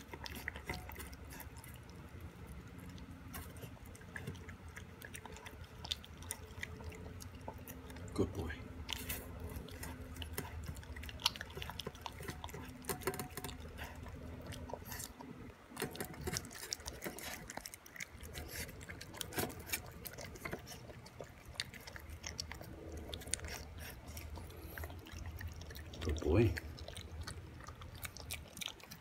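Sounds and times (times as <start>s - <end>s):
puppy chewing: 0.0s - 29.0s.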